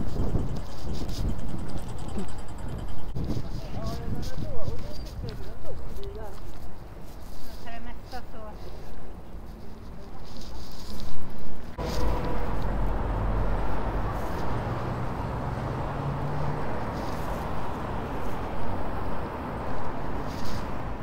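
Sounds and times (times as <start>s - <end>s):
car engine tone: 11.8s - 19.5s
passing cars rumbling: 11.8s - 21.0s.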